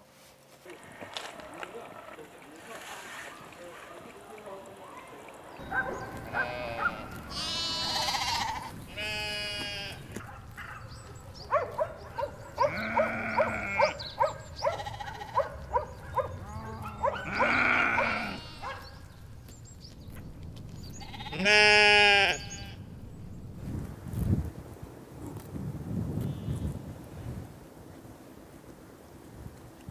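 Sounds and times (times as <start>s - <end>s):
sheep bleating: 6.1s - 10.2s, 12.6s - 14.0s, 14.6s - 15.4s, 16.4s - 18.8s, 21.0s - 22.8s
short sharp sheep calls: 6.2s - 10.0s, 17.2s - 18.8s, 21.0s - 22.8s.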